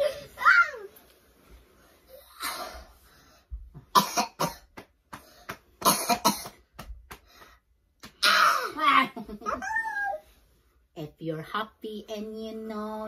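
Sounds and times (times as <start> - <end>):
person coughing: 3.9 - 4.7, 5.8 - 6.6.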